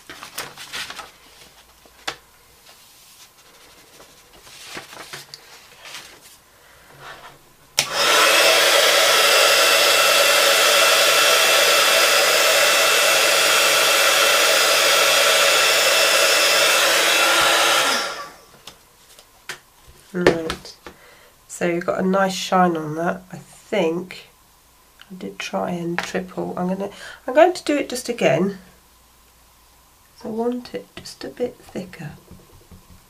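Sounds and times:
paper handling: 0.0 - 6.4, 18.5 - 20.4
heat gun blowing with whine: 7.8 - 18.6.

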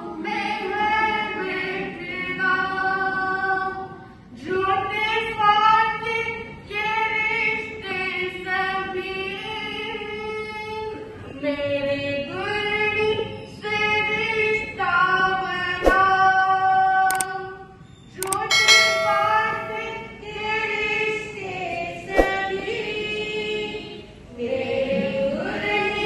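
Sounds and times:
sharp click: 18.2 - 19.8.

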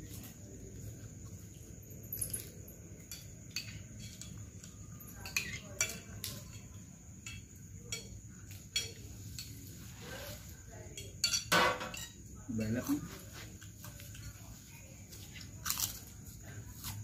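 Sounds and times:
spoons clinking on plates: 2.0 - 13.0.

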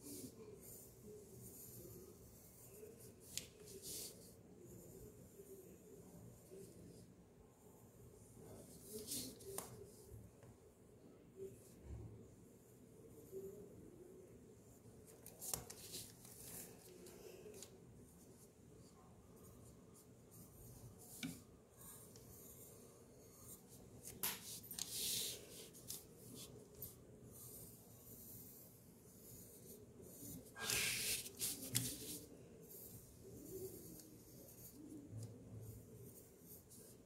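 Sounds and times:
pencil scratching on paper: 0.0 - 7.0, 19.4 - 37.0.

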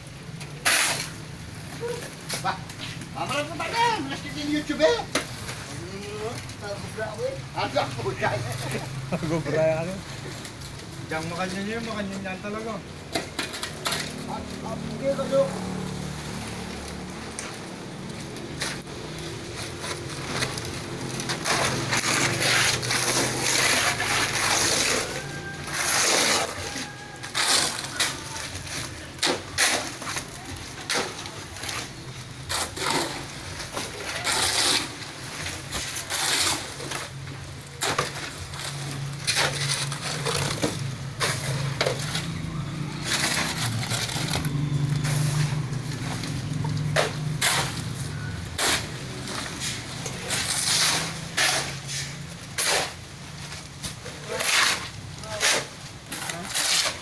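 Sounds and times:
shovel scraping concrete: 0.4 - 6.4, 18.5 - 57.0
shovel digging into wet gravel: 0.6 - 1.2, 21.2 - 31.2, 33.9 - 35.0, 46.8 - 53.1, 54.1 - 57.0.

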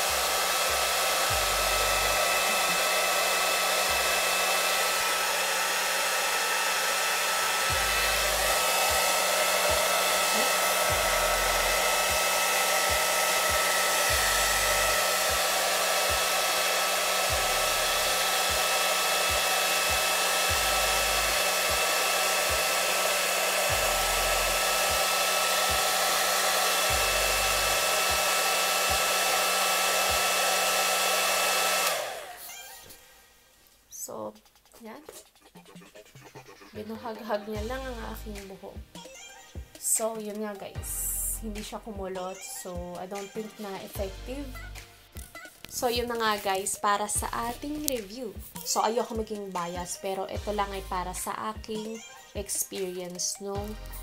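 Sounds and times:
blow dryer running: 0.0 - 33.1.

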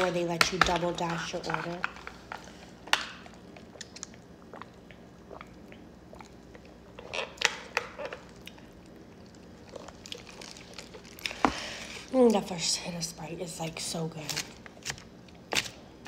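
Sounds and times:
swallowing: 3.2 - 7.3.

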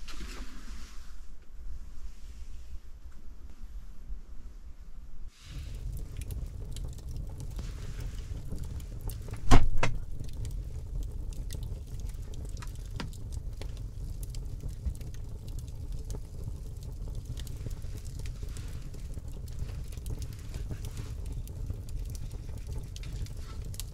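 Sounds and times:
low rumble: 5.1 - 23.9
wood fire crackling in stove: 5.3 - 23.9
loud crack of fire: 5.4 - 23.9.

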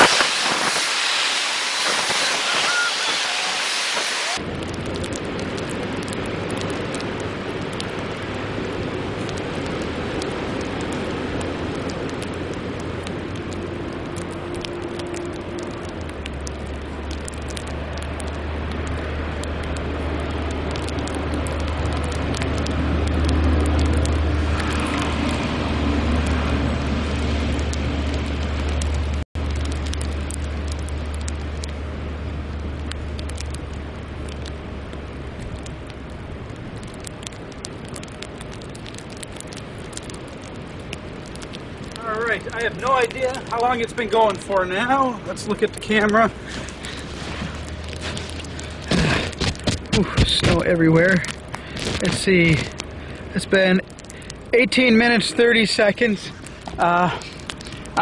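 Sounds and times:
wind rushing: 0.0 - 4.8
low rumble: 0.0 - 58.0.

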